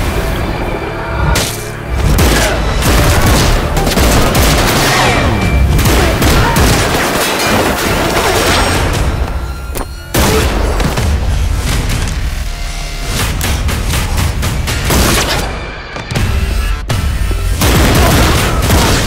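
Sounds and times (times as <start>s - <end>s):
action music score: 0.0s - 19.0s
rapid gunfire: 2.0s - 9.0s, 17.6s - 19.0s.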